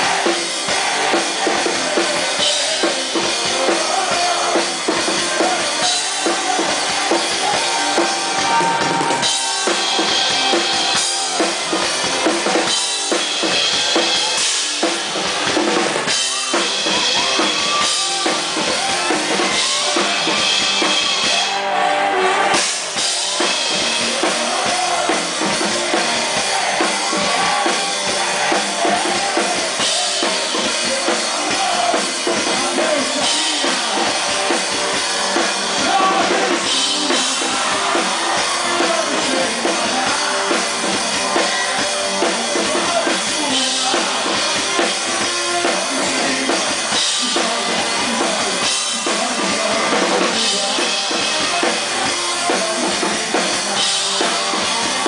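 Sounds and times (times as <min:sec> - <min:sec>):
drum kit: 0:00.0 - 0:55.0
live rock band playing: 0:00.0 - 0:55.0.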